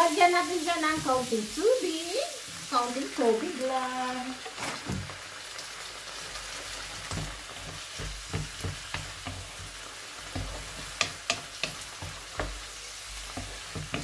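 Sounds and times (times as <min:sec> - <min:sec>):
vegetables sizzling in a frying pan: 0:00.0 - 0:14.0
spatula knocking against pan: 0:07.1 - 0:12.7, 0:13.3 - 0:14.0.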